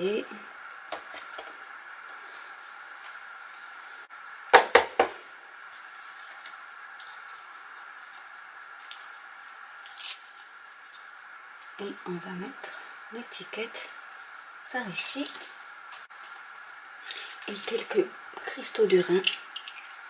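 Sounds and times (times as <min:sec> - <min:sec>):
card knocking on cutting mat: 0:04.6 - 0:05.2.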